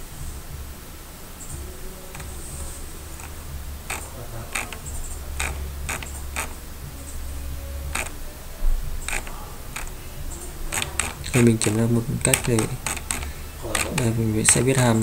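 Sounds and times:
steady low hum: 0.0 - 15.0
computer mouse clicking: 3.2 - 6.6, 7.9 - 8.2, 9.0 - 10.0, 10.7 - 15.0.

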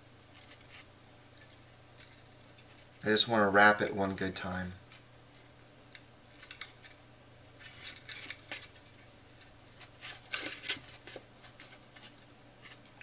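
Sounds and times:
copper wire scraping and clicking: 0.2 - 3.1, 5.9 - 7.0, 7.6 - 13.0.

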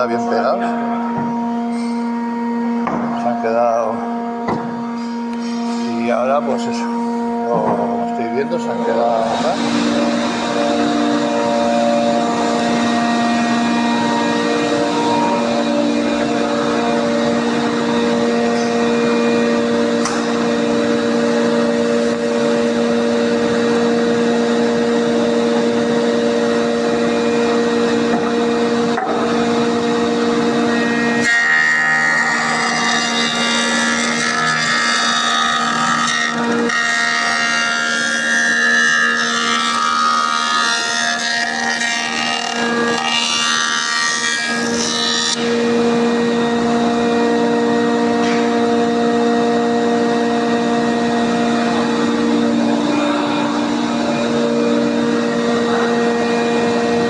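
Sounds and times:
jointer machine humming: 0.0 - 57.0
knives planing wood: 7.5 - 23.1, 24.6 - 46.0.

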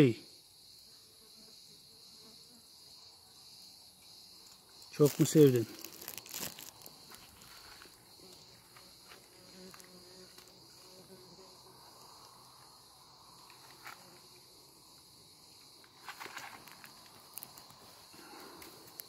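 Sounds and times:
insects chirring: 0.0 - 19.0
rustle: 4.4 - 12.7, 13.3 - 19.0.

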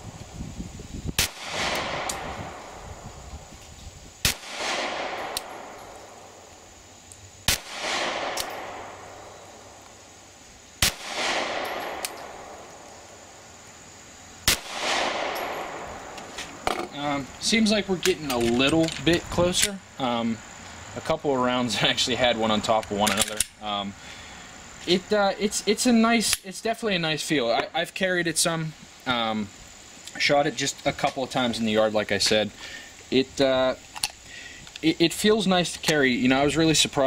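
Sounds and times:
pistol shots with echo: 1.2 - 2.8, 4.2 - 6.4, 7.5 - 9.4, 10.8 - 12.8, 14.4 - 16.2.

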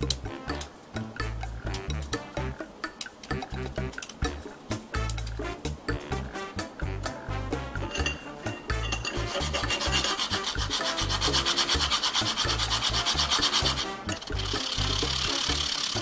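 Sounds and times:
bread rasping on metal grater: 9.1 - 16.0.

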